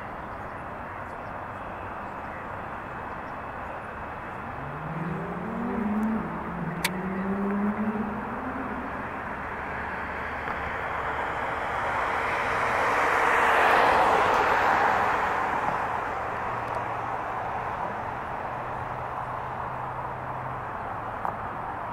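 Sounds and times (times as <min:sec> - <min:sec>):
vehicle passing: 0:03.4 - 0:21.9
sharp click: 0:06.8 - 0:07.0.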